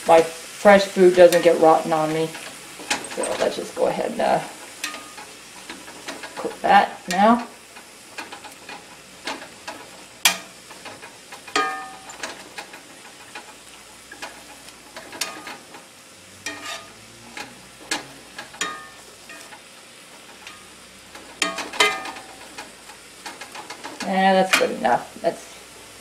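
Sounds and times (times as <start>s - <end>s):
meat and vegetables sizzling: 0.0s - 26.0s
metal spatula clanking on pan: 1.2s - 15.8s, 16.4s - 19.6s, 20.2s - 25.0s.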